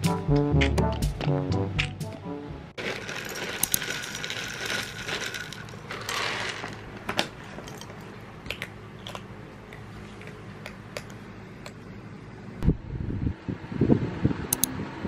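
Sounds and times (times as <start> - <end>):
dry kibble poured into a bowl: 2.8 - 6.8.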